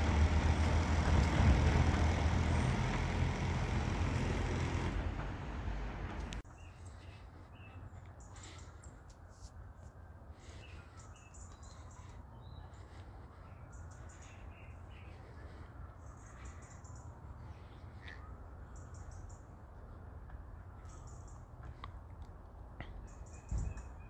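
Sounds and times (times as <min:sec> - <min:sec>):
small birds chirping: 0:06.4 - 0:09.2, 0:10.3 - 0:20.0, 0:20.8 - 0:21.9, 0:22.8 - 0:24.0.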